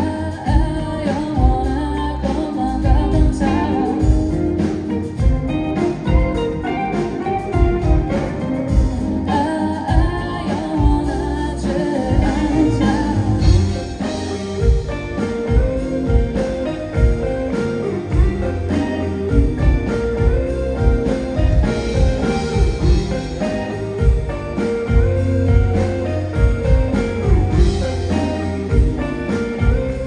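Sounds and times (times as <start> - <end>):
woman singing: 0.0 - 4.7, 8.7 - 14.8
drum kit beat: 0.0 - 30.0
electric guitar: 0.0 - 30.0.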